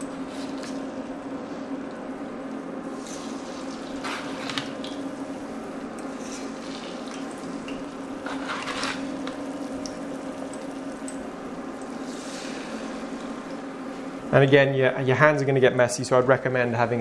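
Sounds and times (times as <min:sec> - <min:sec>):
low steady hum: 0:00.0 - 0:17.0
food sizzling in hot oil: 0:02.9 - 0:13.7.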